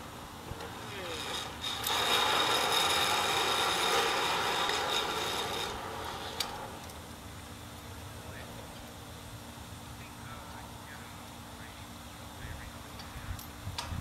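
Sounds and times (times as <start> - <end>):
rope whirring through descent device: 0.0 - 7.1.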